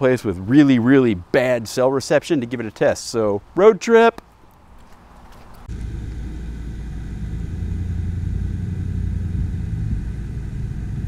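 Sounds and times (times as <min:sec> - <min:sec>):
road noise: 0:00.0 - 0:11.0
vehicle engine rumble: 0:04.4 - 0:11.0.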